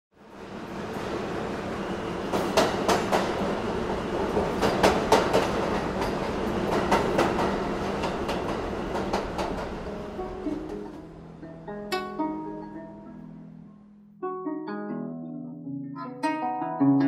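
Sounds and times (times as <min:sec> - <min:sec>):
subway train rumble: 0:00.2 - 0:13.0
wheels clacking over rail joints: 0:02.2 - 0:11.2.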